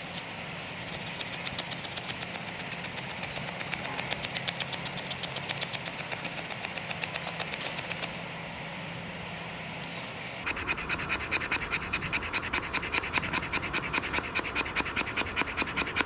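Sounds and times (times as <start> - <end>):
knife scraping wood: 10.4 - 16.0.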